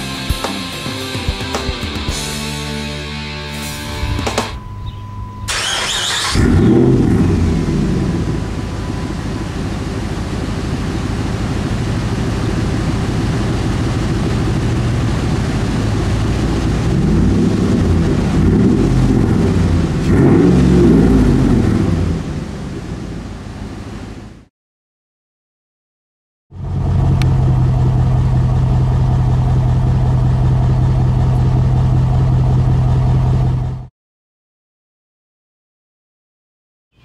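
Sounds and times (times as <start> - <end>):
engine idling: 0.0 - 24.4, 26.5 - 33.9
engine throttle blips: 3.2 - 24.5, 26.5 - 33.9
engine cranking: 5.4 - 8.1.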